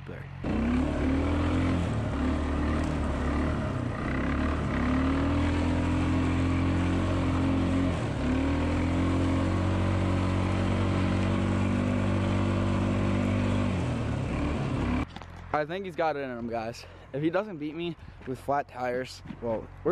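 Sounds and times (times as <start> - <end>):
atv engine running hard: 0.0 - 15.5.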